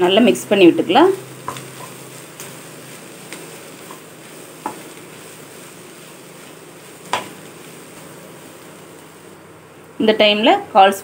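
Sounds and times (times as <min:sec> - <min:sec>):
food sizzling in oil: 0:00.0 - 0:11.0
spatula knocking against pan: 0:07.1 - 0:07.4.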